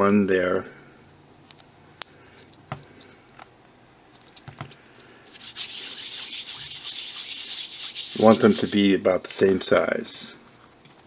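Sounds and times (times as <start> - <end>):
hands rubbing clay: 4.2 - 9.0.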